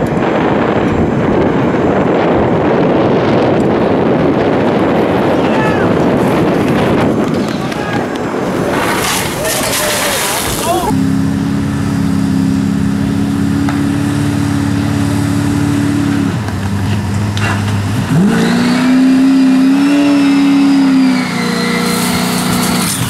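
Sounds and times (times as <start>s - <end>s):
pickup truck engine revving: 8.3s - 23.0s.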